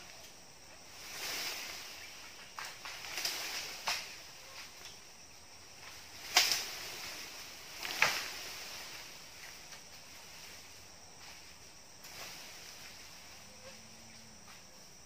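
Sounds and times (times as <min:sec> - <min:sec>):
insects hissing: 0:00.0 - 0:15.0.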